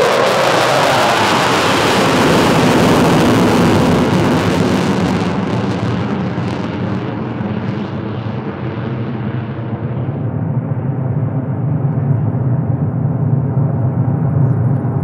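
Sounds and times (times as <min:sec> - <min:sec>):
jet afterburner roar: 0:00.0 - 0:15.0.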